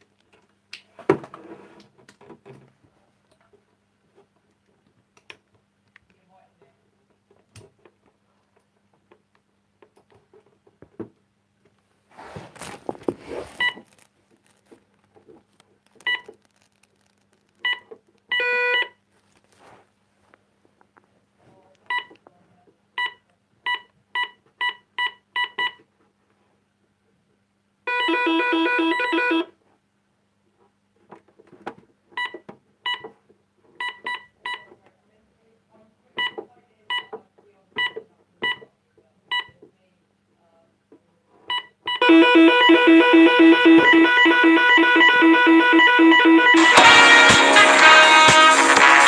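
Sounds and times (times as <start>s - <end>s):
handling rustle: 12.1s - 18.3s, 19.0s - 20.5s
keypad beeps: 16.0s - 16.3s
long electronic tone: 44.4s - 48.6s.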